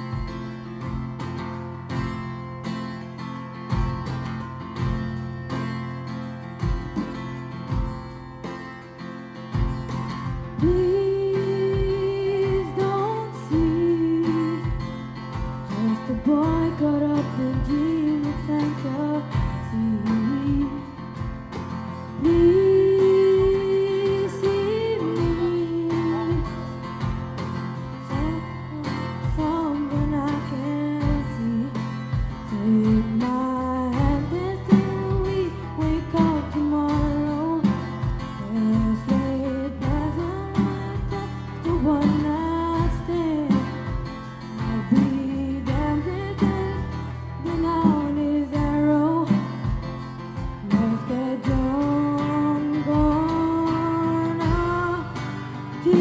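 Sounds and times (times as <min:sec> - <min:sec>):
live pop-rock band playing: 0:00.0 - 0:56.0
boy singing into microphone: 0:10.6 - 0:15.0, 0:15.7 - 0:21.0, 0:22.2 - 0:26.8, 0:28.0 - 0:44.0, 0:44.6 - 0:49.8, 0:50.6 - 0:56.0.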